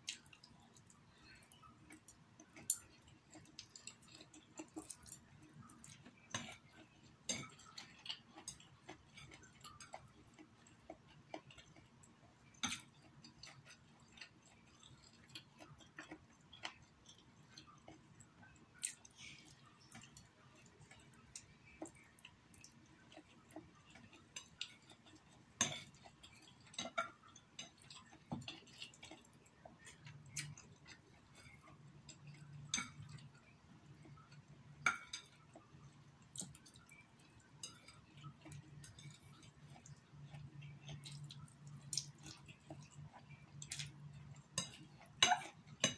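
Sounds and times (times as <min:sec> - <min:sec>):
chewing and slurping noodles: 0:00.0 - 0:34.6.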